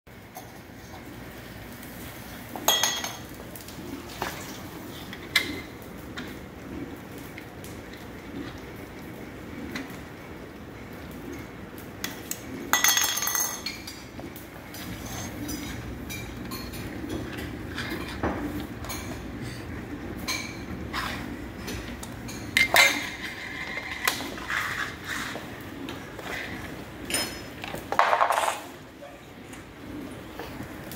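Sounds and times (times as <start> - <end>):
metal lids clattering on wooden floor: 12.8 - 13.9, 27.1 - 28.8.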